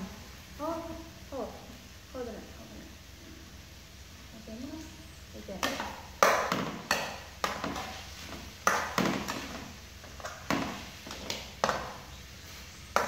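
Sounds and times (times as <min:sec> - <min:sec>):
metal ladle scraping a wok: 0:06.8 - 0:11.9.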